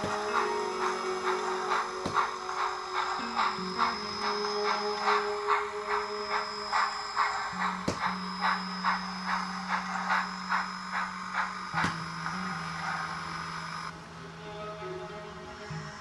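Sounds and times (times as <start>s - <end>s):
model steam locomotive chuffing: 0.0s - 14.2s
background music with held notes: 0.0s - 16.0s.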